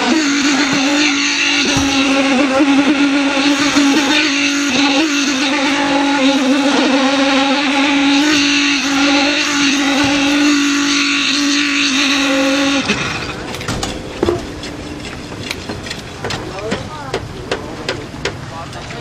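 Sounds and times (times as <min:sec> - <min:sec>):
small petrol engine running: 0:00.0 - 0:19.0
scattered knocks: 0:01.6 - 0:02.4, 0:13.6 - 0:18.4.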